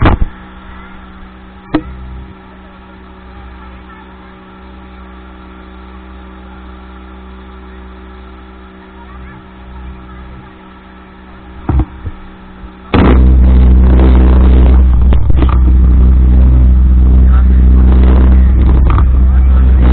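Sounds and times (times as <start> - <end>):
speedboat engine droning: 0.0 - 19.9
dense rushing noise: 11.1 - 19.9.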